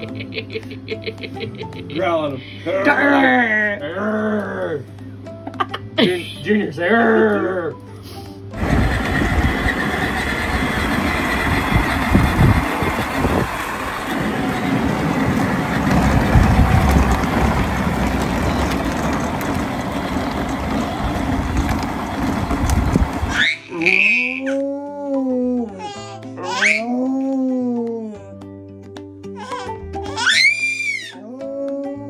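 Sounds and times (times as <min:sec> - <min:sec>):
toy car rolling on pavement: 0:08.6 - 0:24.5.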